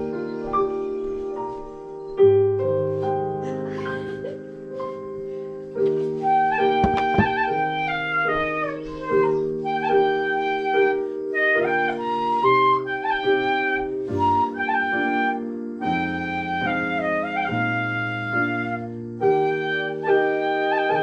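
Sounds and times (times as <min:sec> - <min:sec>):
bamboo flutes playing melody: 0:06.1 - 0:21.0
sharp knock: 0:06.8 - 0:07.4.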